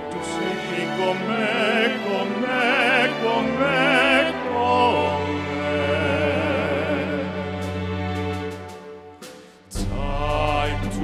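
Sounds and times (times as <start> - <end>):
men singing operatic pop ballad: 0.1 - 7.6, 9.7 - 11.0.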